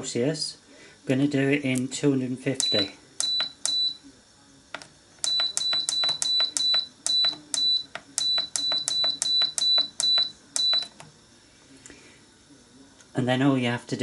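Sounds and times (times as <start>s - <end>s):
oven control panel beeping: 2.6s - 4.0s, 5.2s - 11.1s
button clicks: 4.8s - 11.0s.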